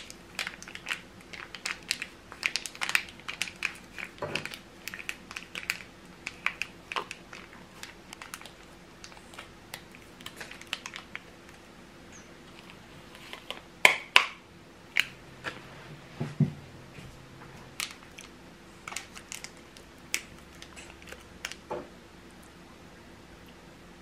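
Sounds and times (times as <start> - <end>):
paper packet crinkling and tearing: 0.0 - 11.6, 17.8 - 21.6.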